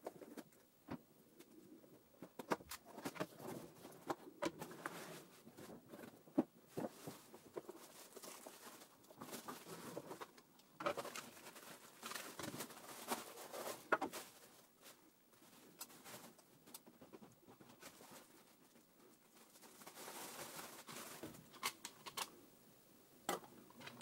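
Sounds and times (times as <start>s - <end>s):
bubble wrap crinkling: 2.8s - 16.8s, 17.6s - 22.2s
plastic parts clicking and tapping: 21.5s - 22.3s.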